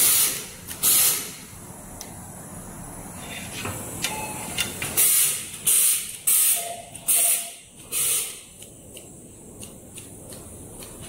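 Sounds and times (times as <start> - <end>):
laser welder hissing bursts: 0.0 - 1.5, 5.0 - 9.4.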